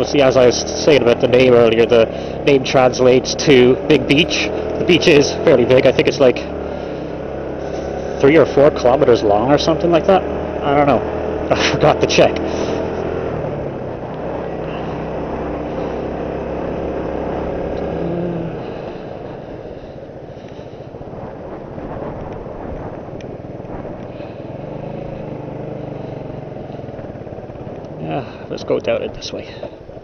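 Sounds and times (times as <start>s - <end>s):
motorcycle engine running: 0.0s - 30.0s
wind noise: 18.5s - 24.4s.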